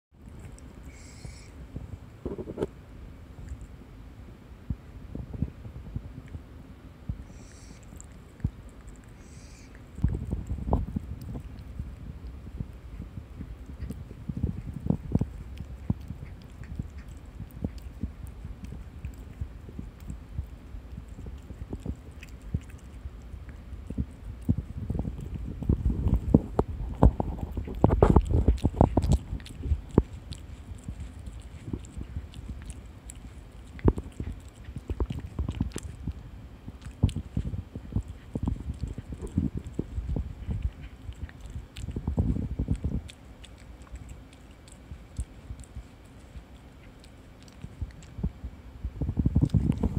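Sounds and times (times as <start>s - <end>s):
cat chewing bread: 0.2s - 3.9s, 7.1s - 49.9s
low rumble: 0.2s - 49.9s
cat licking clicks: 7.3s - 48.2s
soft low thumps: 47.7s - 49.9s.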